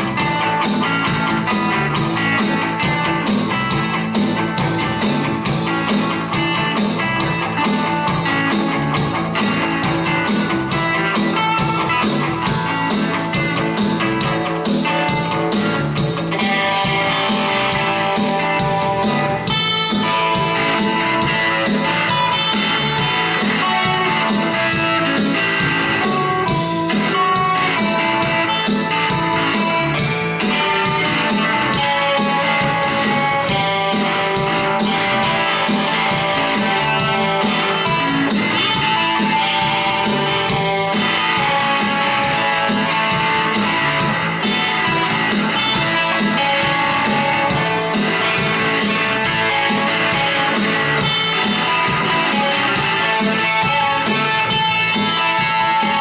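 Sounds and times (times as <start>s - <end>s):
distorted electric guitars: 0.0s - 56.0s
drum machine rock beat: 0.0s - 56.0s.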